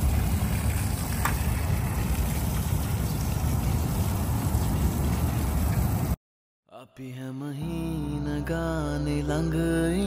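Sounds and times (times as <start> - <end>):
hose water splashing on plants: 0.0 - 6.2.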